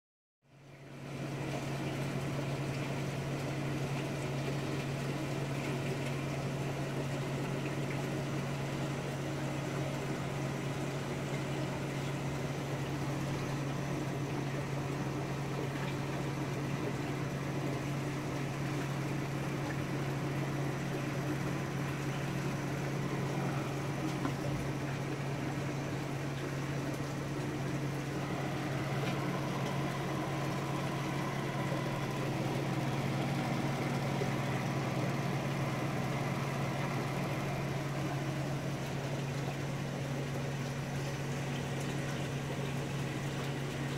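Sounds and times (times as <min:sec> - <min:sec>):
aquarium pump humming: 0:00.5 - 0:43.9
water bubbling and trickling: 0:00.7 - 0:43.9.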